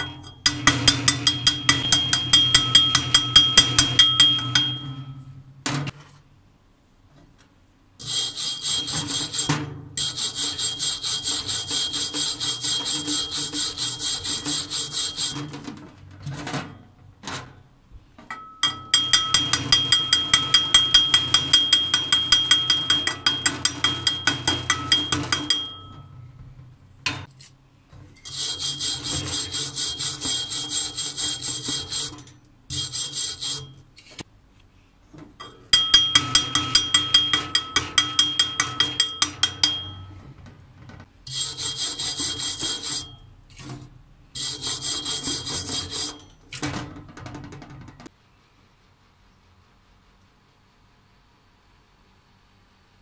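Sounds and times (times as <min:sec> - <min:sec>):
wire brush scraping metal: 0:08.0 - 0:17.5, 0:27.1 - 0:34.3, 0:41.3 - 0:48.0.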